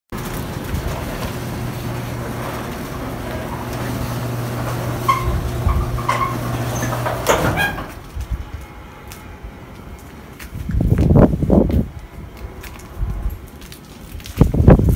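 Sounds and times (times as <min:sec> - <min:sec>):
garage door motor hum: 0:00.1 - 0:10.0
motor stopping clunk: 0:00.2 - 0:08.0
door rollers squeaking: 0:00.2 - 0:08.1.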